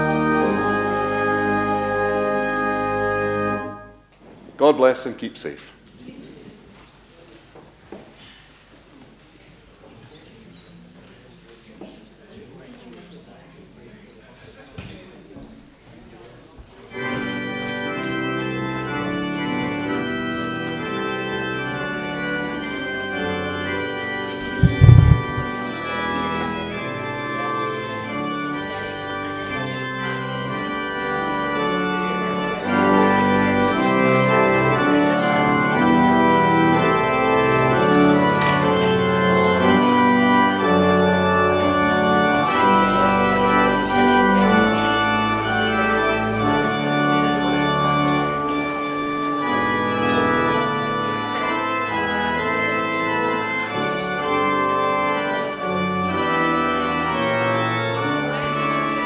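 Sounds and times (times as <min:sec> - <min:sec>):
church organ chords: 0:00.0 - 0:04.1, 0:16.9 - 0:59.0.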